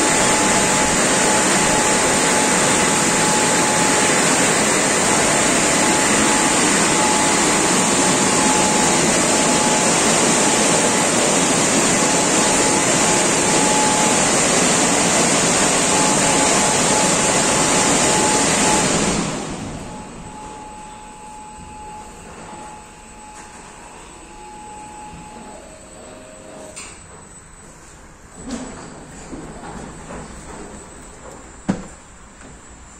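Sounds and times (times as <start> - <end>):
car wash blowers rushing air: 0.0 - 20.8
low hum: 0.0 - 25.7.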